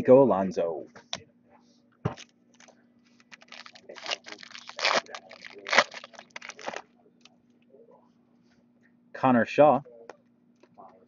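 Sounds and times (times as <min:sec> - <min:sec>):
foil wrapper crinkling: 0:02.6 - 0:06.8
foil wrapper ripping: 0:03.2 - 0:06.8.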